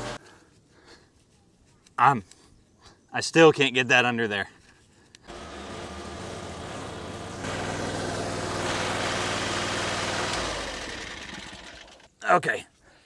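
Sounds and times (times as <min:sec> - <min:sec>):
skid steer engine revving: 0:00.0 - 0:00.2, 0:05.3 - 0:12.1.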